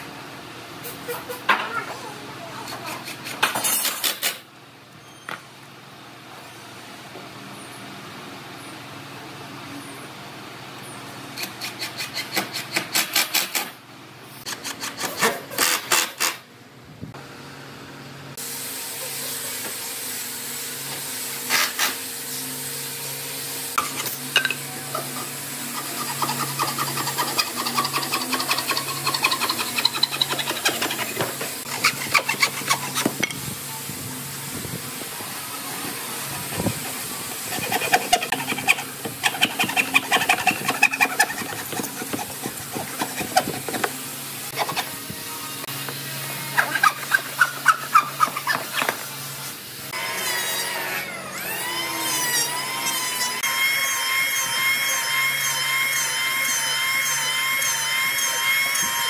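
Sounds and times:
bow saw cutting wood: 11.4s - 13.6s, 25.0s - 33.4s, 35.8s - 49.1s.

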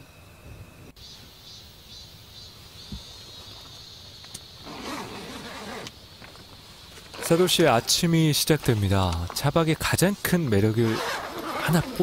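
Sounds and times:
insects chirring: 0.0s - 12.0s
tent fabric rustling: 4.6s - 8.0s, 10.8s - 12.0s.

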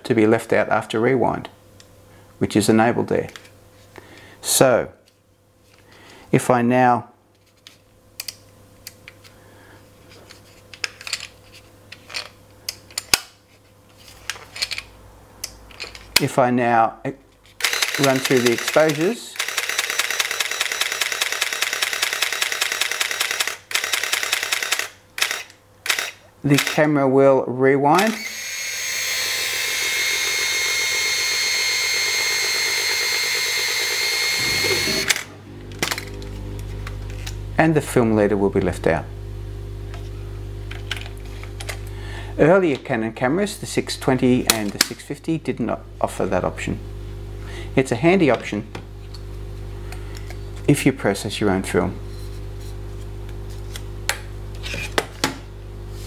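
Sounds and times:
camera shutter clicks: 17.6s - 26.8s
film advance snap: 17.6s - 26.8s.

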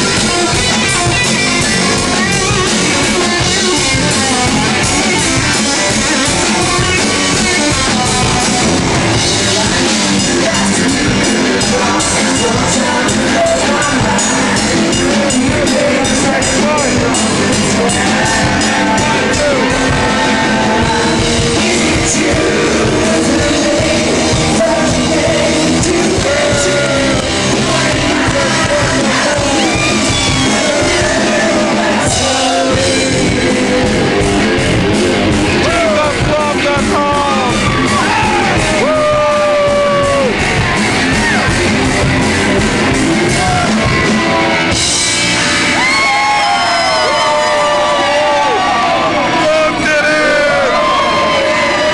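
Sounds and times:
person singing and yelling: 0.0s - 34.6s, 35.5s - 40.5s
loud live rock band: 0.0s - 51.9s.

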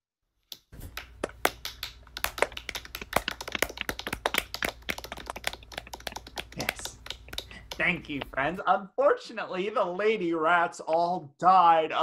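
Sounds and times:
people clapping: 0.8s - 8.6s.

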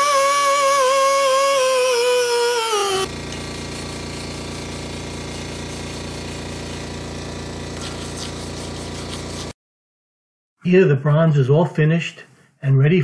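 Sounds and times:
air die grinder whining: 0.0s - 7.2s.

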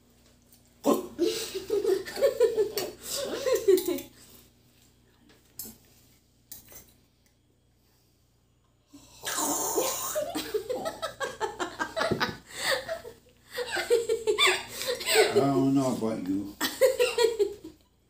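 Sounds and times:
child giggling: 11.8s - 15.4s.

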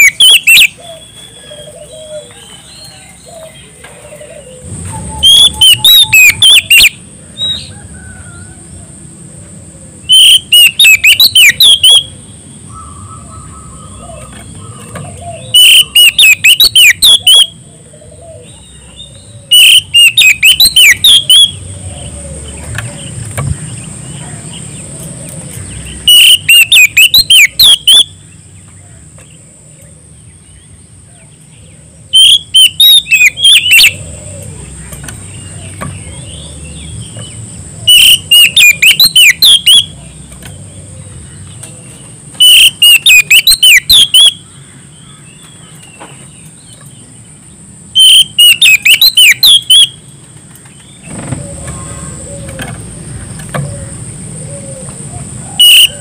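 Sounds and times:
bird singing sharp whistles: 0.0s - 0.8s, 5.0s - 6.9s, 10.1s - 12.1s, 15.5s - 17.5s, 19.5s - 21.6s, 26.1s - 28.2s, 32.2s - 34.0s, 37.9s - 39.9s, 42.4s - 44.4s, 48.0s - 50.0s.

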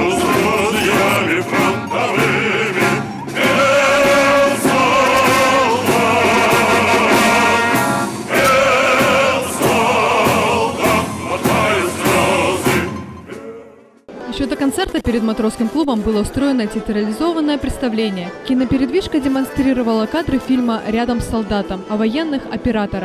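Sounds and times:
wavering singing voices: 0.0s - 7.7s, 8.3s - 14.0s
band with drums and brass: 0.0s - 14.2s.

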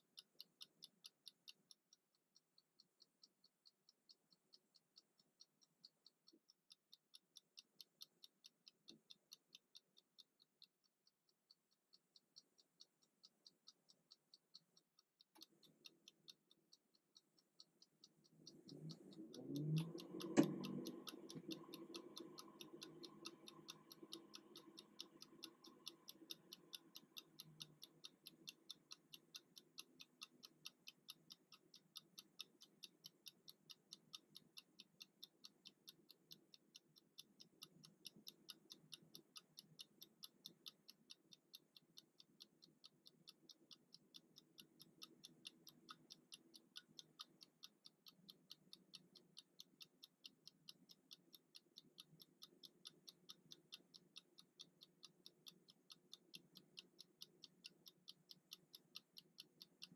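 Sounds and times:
kitchen timer ticking: 0.0s - 59.9s.

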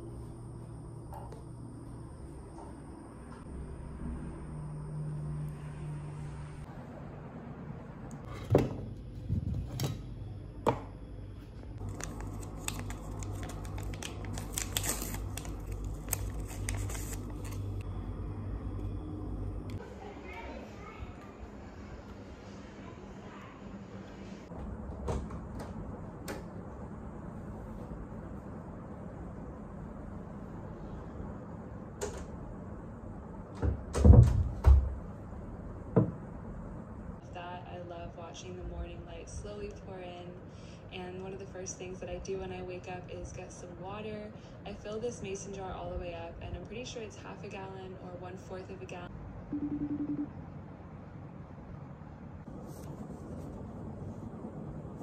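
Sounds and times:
steady low hum: 0.0s - 55.0s
paper sachet crinkling and tearing: 11.8s - 17.8s.

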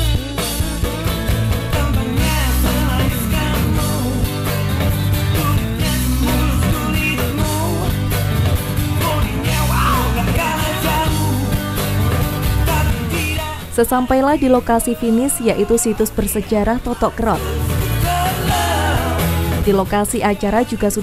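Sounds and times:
rock music with vocals: 0.0s - 21.0s.

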